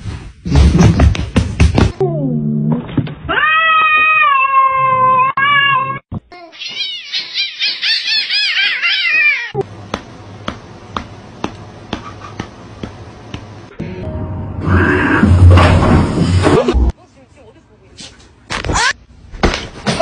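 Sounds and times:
cats yowling and screeching: 0:03.3 - 0:09.6.

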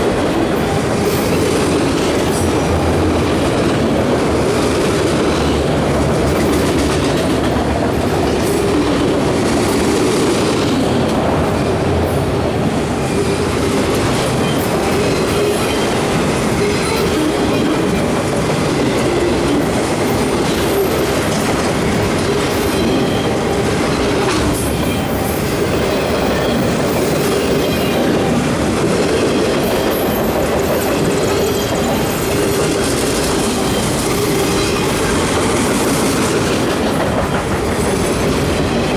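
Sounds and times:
freight train rolling past: 0:00.0 - 0:38.9
high wheel squeal: 0:29.8 - 0:35.3.

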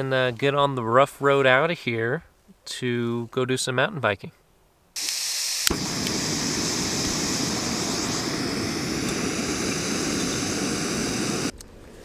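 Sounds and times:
lighter click: 0:05.0 - 0:06.4, 0:07.1 - 0:11.6
burner flame rushing: 0:05.0 - 0:11.5
gas hissing from valve: 0:05.0 - 0:11.5.

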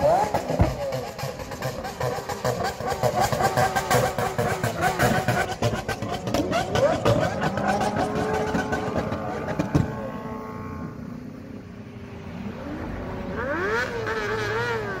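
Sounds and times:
car engines revving: 0:00.0 - 0:15.0
rush of traffic: 0:00.0 - 0:15.0.

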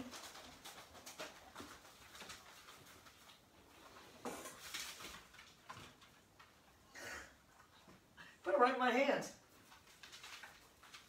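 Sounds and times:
faint rustling and scuffling: 0:00.0 - 0:08.3.

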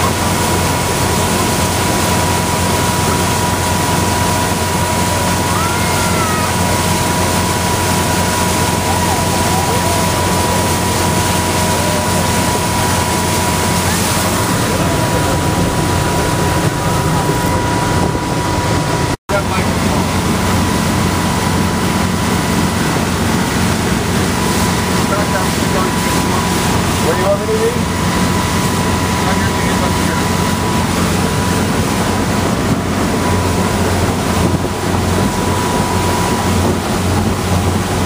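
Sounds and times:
boat engine droning: 0:00.0 - 0:38.0
churning wake water: 0:00.0 - 0:38.0
wind on microphone: 0:06.6 - 0:19.2, 0:30.2 - 0:38.0.

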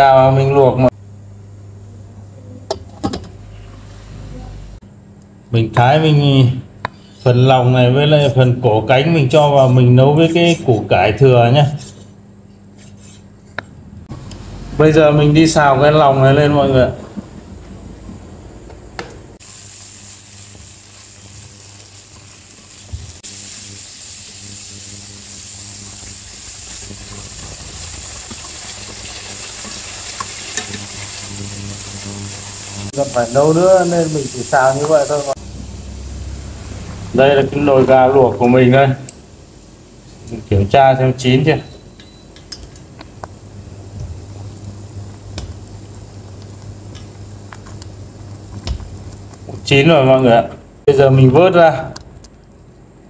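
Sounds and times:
low hum: 0:13.9 - 0:40.5
giblets sizzling in oil: 0:14.1 - 0:50.1
water boiling in a pot: 0:14.1 - 0:50.1.

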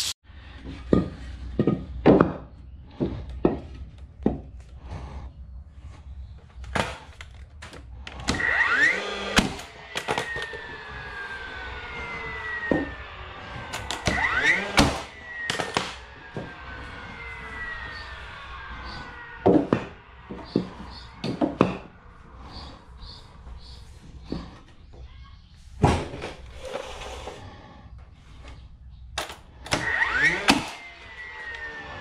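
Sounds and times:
nailer motor whine: 0:02.9 - 0:24.7, 0:29.2 - 0:32.0
nail gun bang: 0:08.2 - 0:10.6, 0:13.7 - 0:16.5, 0:29.2 - 0:30.8
wooden boards knocking: 0:19.4 - 0:21.9.

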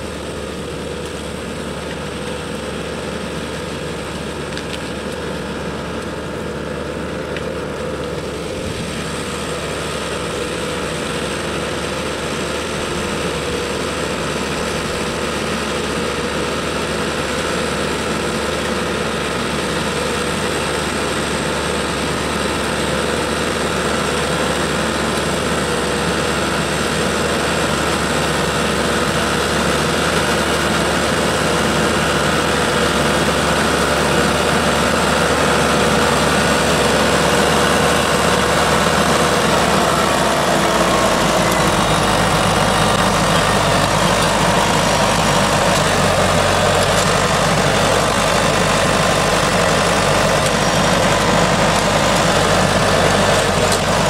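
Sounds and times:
tractor engine running: 0:00.0 - 0:54.0
trimmer cutting branches: 0:13.3 - 0:54.0.

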